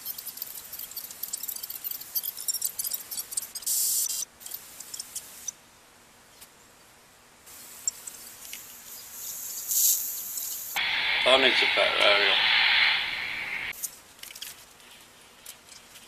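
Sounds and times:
short bursts of hiss: 0:09.2 - 0:13.7
radio static crackling: 0:10.8 - 0:13.7.

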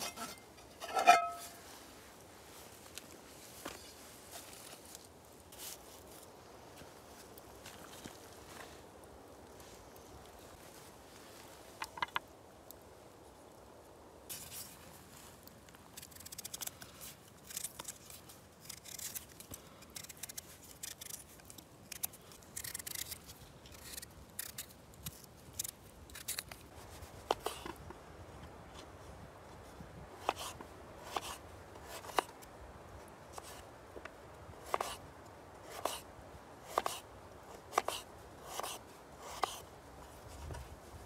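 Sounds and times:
knife scraping potato skin: 0:17.4 - 0:21.3, 0:21.9 - 0:24.7.

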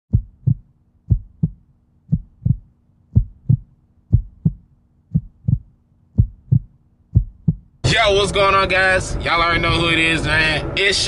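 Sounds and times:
heartbeat thumps: 0:00.1 - 0:07.8, 0:09.5 - 0:10.1
faint steady hum: 0:00.1 - 0:11.0.

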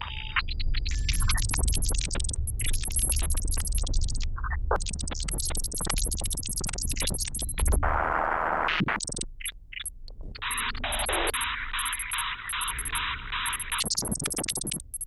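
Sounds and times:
glitchy electronic music: 0:01.0 - 0:04.2, 0:10.5 - 0:15.0.

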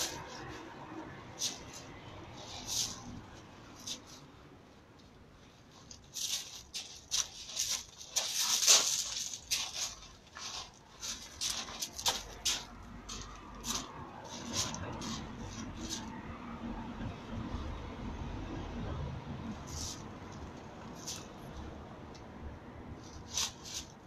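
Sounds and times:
footsteps on gravel: 0:05.9 - 0:16.1.

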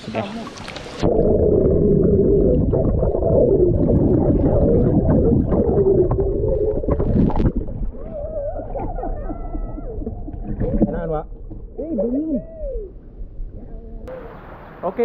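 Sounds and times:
underwater rush of water and bubbles: 0:00.0 - 0:11.8.

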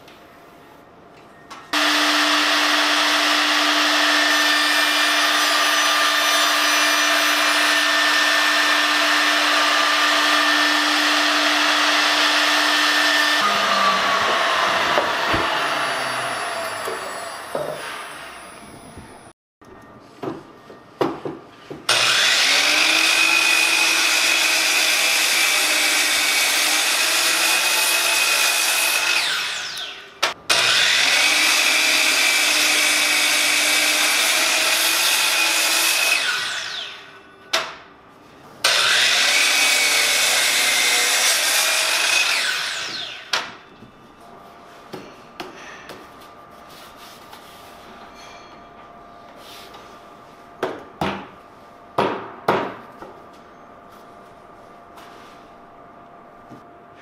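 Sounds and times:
miter saw cutting log: 0:01.8 - 0:18.6, 0:21.9 - 0:37.1, 0:38.6 - 0:43.4
saw blade whine spinning down: 0:11.4 - 0:19.3.

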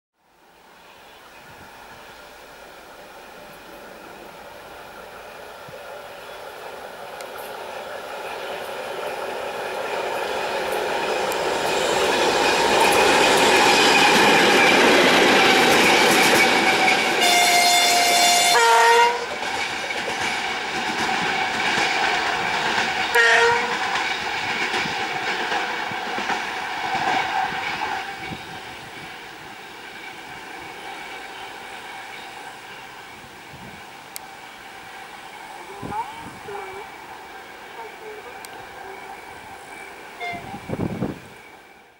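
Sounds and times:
diesel locomotive passing: 0:00.2 - 0:41.9
locomotive horn blasts: 0:16.4 - 0:19.4, 0:23.1 - 0:23.9, 0:40.2 - 0:41.1.

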